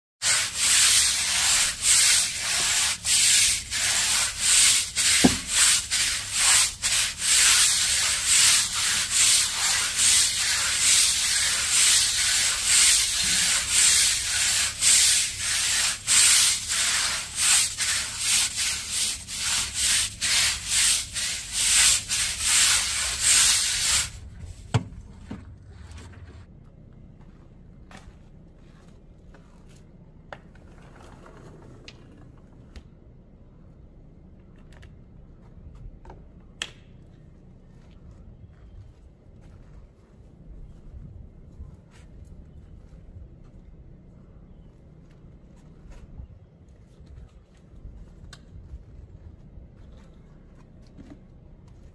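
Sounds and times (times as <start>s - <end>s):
deck brush scrubbing wet concrete: 0.2s - 24.8s.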